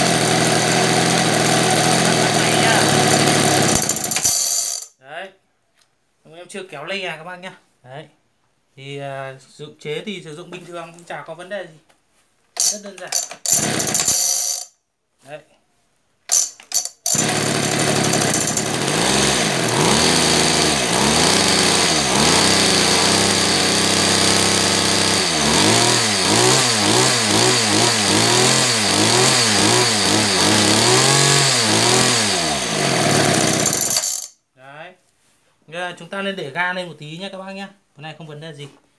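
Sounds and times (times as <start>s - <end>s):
brush-cutter engine running: 0.0s - 4.8s, 12.6s - 14.6s, 17.1s - 34.3s.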